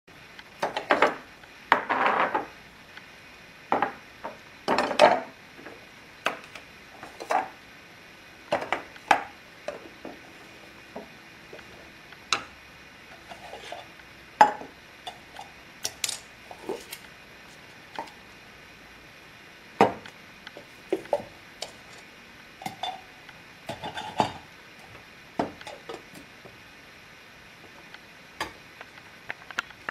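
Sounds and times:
cups clinking and knocking: 14.4 - 15.4, 19.8 - 20.0, 22.6 - 23.1, 23.7 - 24.5.

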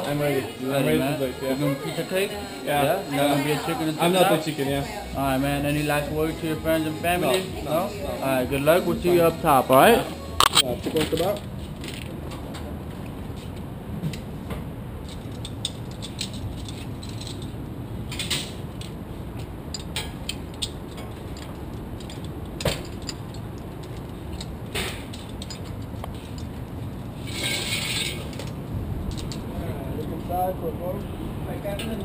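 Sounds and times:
steady low rumble: 11.4 - 31.8
metal carabiners clicking and rattling: 15.0 - 29.4.

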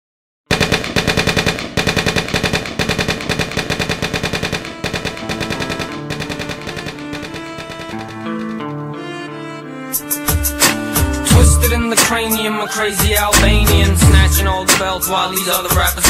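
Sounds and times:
machine-gun fire: 0.5 - 8.3
bowed strings: 13.4 - 15.0.

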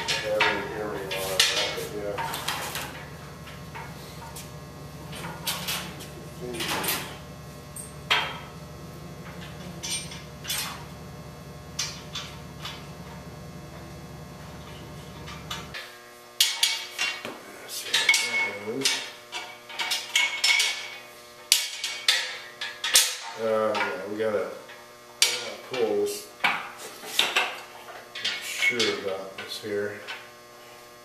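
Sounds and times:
steel parts clanking: 0.0 - 11.1, 11.7 - 15.8
steady low hum: 0.0 - 31.0.

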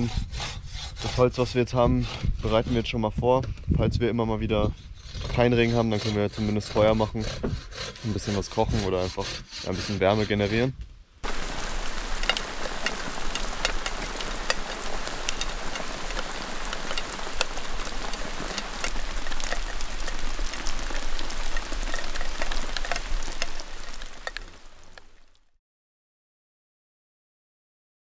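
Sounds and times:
raindrops tapping sharply: 11.2 - 25.4
rain falling: 11.2 - 25.5.

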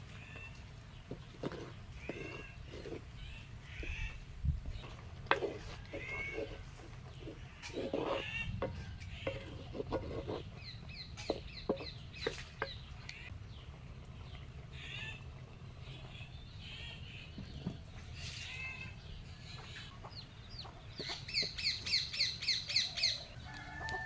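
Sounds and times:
wooden spoon scraping clay pot: 0.3 - 12.9, 21.0 - 22.0
hens clucking: 1.1 - 13.3, 19.5 - 24.0.

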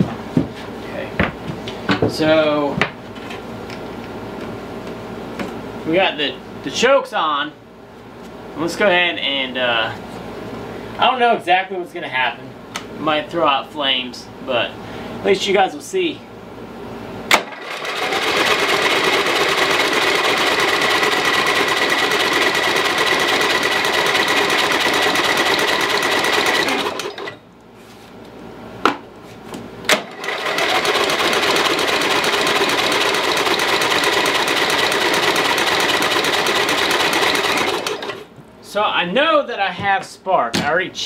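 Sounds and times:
mower engine cranking by starter: 17.3 - 27.4, 29.9 - 38.3.

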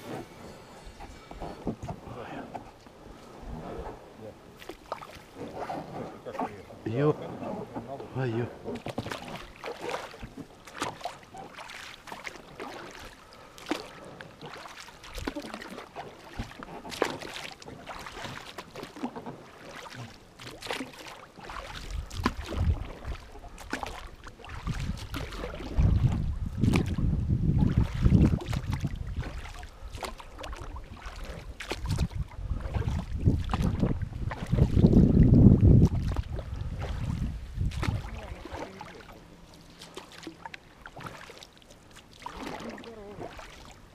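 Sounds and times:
oar splashes and knocks: 0.0 - 2.8, 4.6 - 43.9
wind rumble on microphone: 0.0 - 4.3, 21.7 - 38.8.

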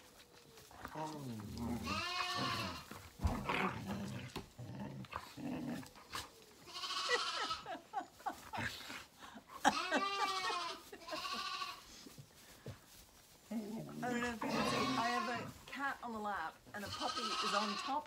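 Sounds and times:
puppies growling: 0.6 - 7.3, 13.4 - 15.7
lambs bleating: 1.6 - 2.9, 6.6 - 7.7, 9.6 - 12.0, 14.0 - 15.6, 16.8 - 18.0.

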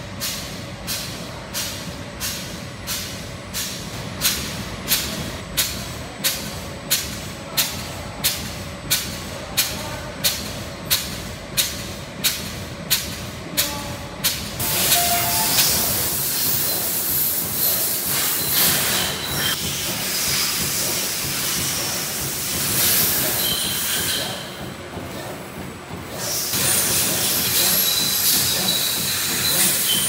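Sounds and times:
machine steady hiss: 10.2 - 24.6
machine short sharp strokes: 14.2 - 24.6, 26.2 - 30.0.

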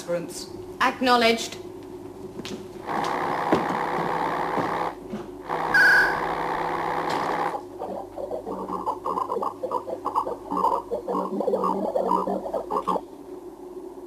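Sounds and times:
steady electronic hum: 0.0 - 14.0
rapid pulsing electronic warble: 5.5 - 13.1
short high beep: 5.7 - 6.2.

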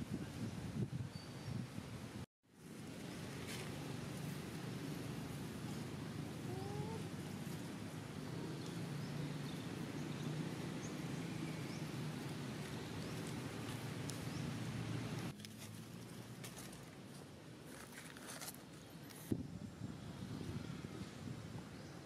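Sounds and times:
dry leaves crackling and rustling: 2.7 - 7.8, 11.8 - 19.3.

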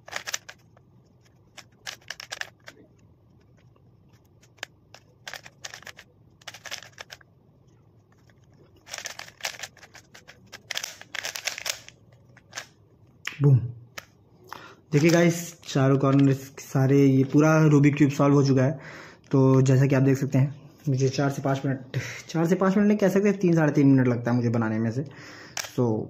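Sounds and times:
puzzle cube layers clicking: 0.0 - 7.2, 8.2 - 12.7.

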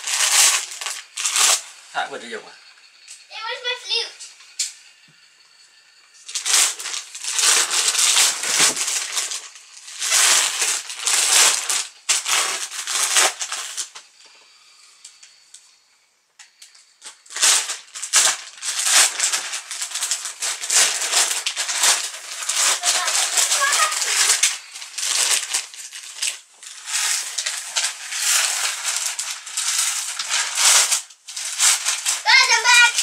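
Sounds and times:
plastic wrapping crinkling: 0.0 - 1.8, 6.2 - 14.0, 17.0 - 33.0.

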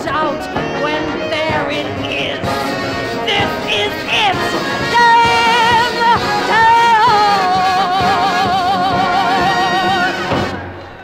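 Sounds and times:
woman singing with vibrato: 0.0 - 10.6
dance-band orchestra: 0.0 - 11.0.

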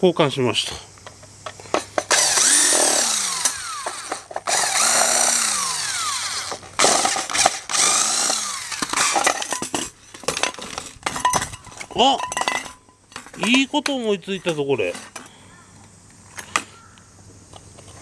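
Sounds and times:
drill clicks: 2.0 - 9.5
electric drill motor whirring: 2.1 - 9.2.

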